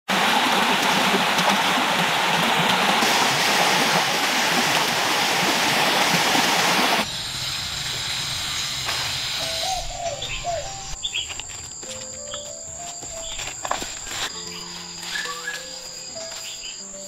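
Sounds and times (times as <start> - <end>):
stream rushing over rocks: 0.1 - 7.0.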